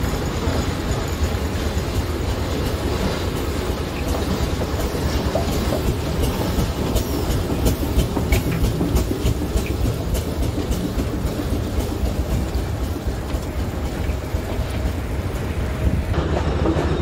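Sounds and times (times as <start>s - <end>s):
steam engine rumble: 0.0s - 17.0s
sharp clicks and knocks: 3.9s - 14.8s.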